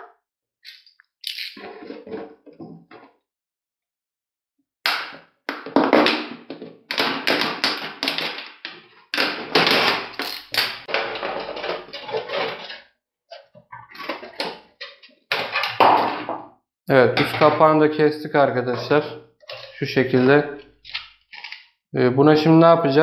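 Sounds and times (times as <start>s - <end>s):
plastic bottle crinkling: 0.7s - 1.6s, 19.5s - 21.7s.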